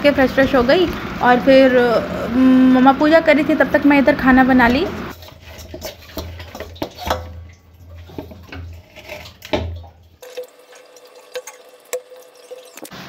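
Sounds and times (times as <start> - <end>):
dough squelching in steel bowl: 2.8 - 13.0.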